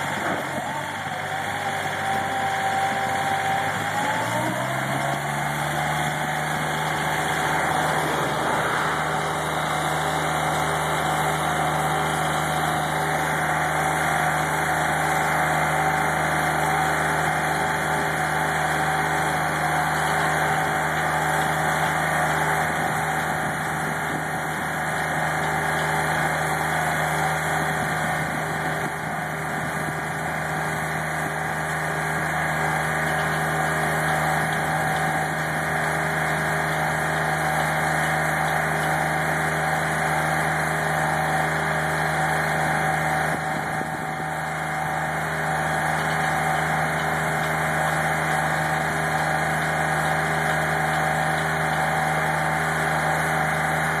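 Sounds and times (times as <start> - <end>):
conveyor engine humming: 2.9 - 29.6.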